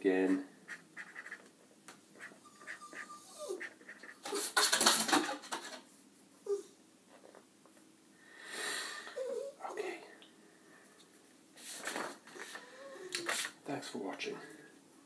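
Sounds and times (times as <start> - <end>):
marker scratching on paper: 0.7 - 1.5.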